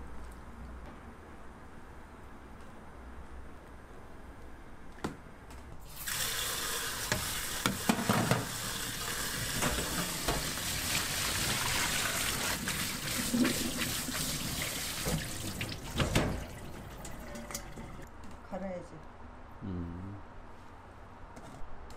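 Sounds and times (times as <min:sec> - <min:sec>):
tap water splashing in sink: 0:05.9 - 0:18.1.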